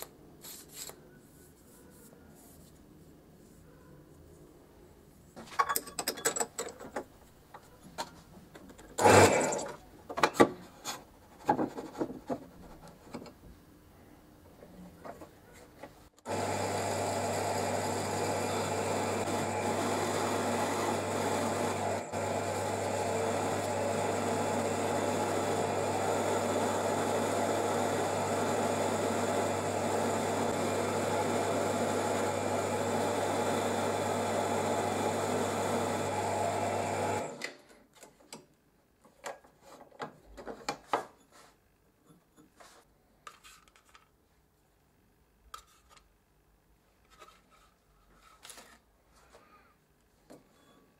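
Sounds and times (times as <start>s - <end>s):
drill press motor humming: 16.2s - 37.4s.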